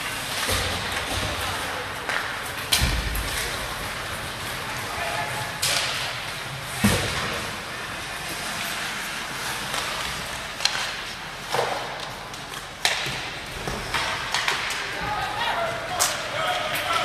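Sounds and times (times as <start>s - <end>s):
hockey sticks knocking on ice: 9.6s - 17.0s.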